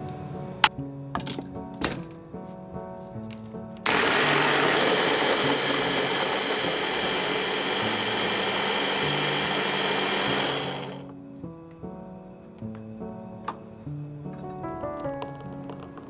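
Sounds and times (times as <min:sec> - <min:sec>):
food chopper motor whirring: 0:03.9 - 0:11.0
high motor whine: 0:03.9 - 0:11.0.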